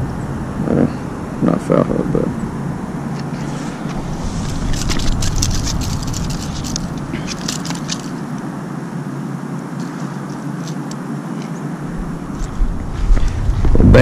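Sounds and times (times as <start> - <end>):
clicks and scrapes on concrete: 3.2 - 8.2.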